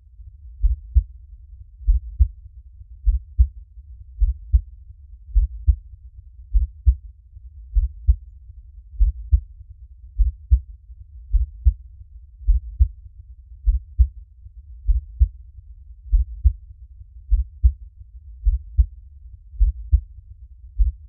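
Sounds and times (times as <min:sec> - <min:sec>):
heartbeat thumps: 0:00.6 - 0:01.1, 0:01.8 - 0:02.4, 0:03.0 - 0:03.5, 0:04.2 - 0:04.7, 0:05.3 - 0:05.8, 0:06.5 - 0:07.0, 0:07.7 - 0:08.2, 0:09.0 - 0:09.4, 0:10.2 - 0:10.6, 0:11.3 - 0:11.8, 0:12.4 - 0:13.0, 0:13.6 - 0:14.2, 0:14.8 - 0:15.4, 0:16.1 - 0:16.6, 0:17.3 - 0:17.8, 0:18.4 - 0:18.9, 0:19.6 - 0:20.1, 0:20.8 - 0:21.0.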